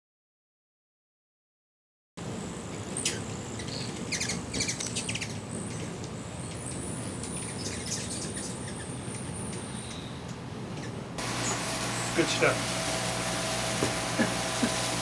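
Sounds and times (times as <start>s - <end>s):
low background hum: 2.2s - 15.0s
hummingbird chip and chatter calls: 2.6s - 15.0s
thin steady high whine: 11.2s - 15.0s.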